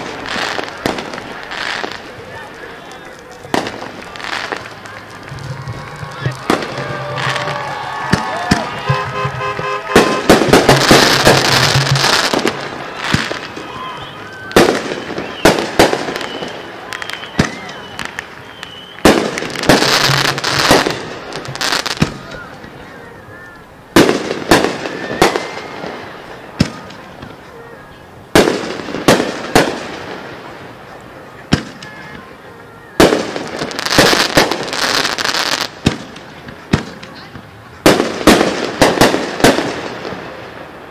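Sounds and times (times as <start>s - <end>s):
dense fireworks crackling: 0.0s - 40.9s
fireworks shells bursting: 3.4s - 22.2s.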